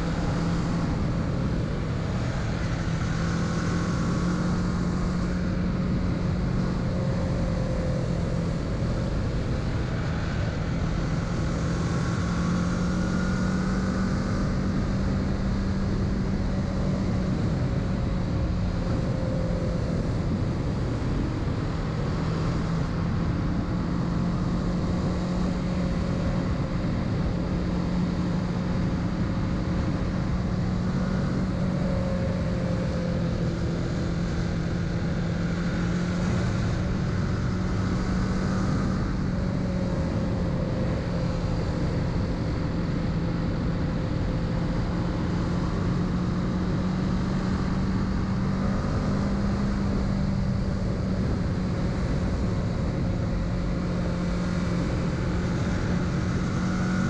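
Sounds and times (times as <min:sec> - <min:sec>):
motorcycle engine cruising: 0:00.0 - 0:57.0
wind and road noise: 0:00.0 - 0:57.0.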